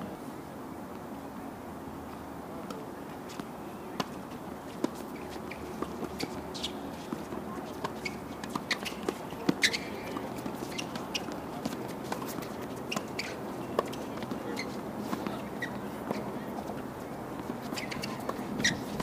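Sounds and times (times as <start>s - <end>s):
footsteps on court: 2.7s - 19.0s
balls bouncing on hard court: 4.8s - 16.8s.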